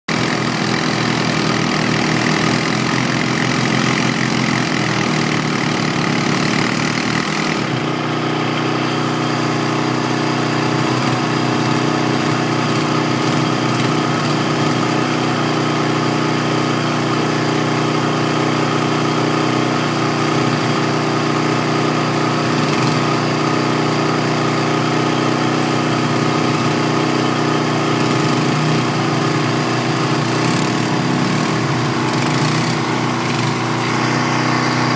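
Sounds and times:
atv engine running: 0.1 - 34.9.

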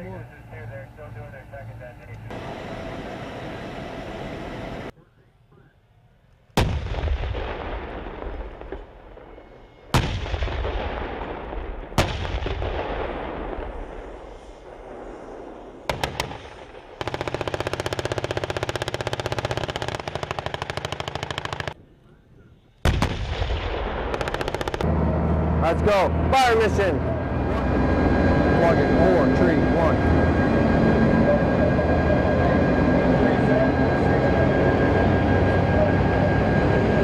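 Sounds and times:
tank gun blasts with rumbling echo: 6.6 - 21.8, 22.8 - 24.9
machine-gun burst: 15.9 - 21.8, 24.0 - 24.8.

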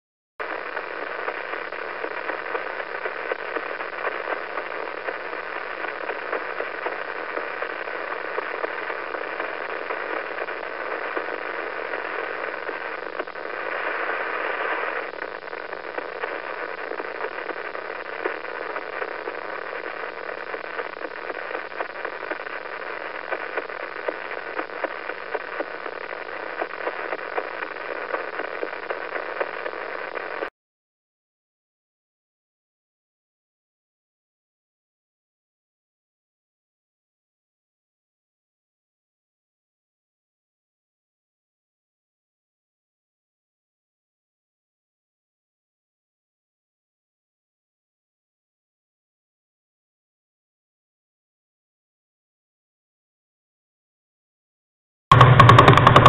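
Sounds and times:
crackling static hiss: 0.4 - 30.5, 55.1 - 56.0.

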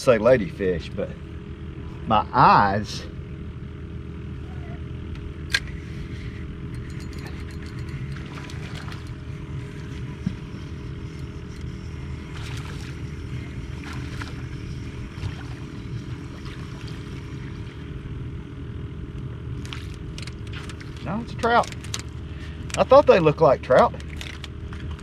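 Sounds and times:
boat motor humming: 0.0 - 25.0
light splashes: 7.6 - 9.2, 12.2 - 13.0, 13.7 - 17.8.

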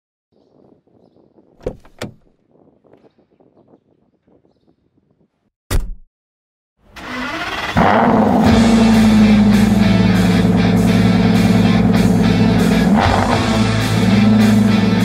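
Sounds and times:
car door clicking open: 1.6 - 2.2
car door shutting with thud: 1.6 - 2.2
car engine starting and running: 6.9 - 15.0.

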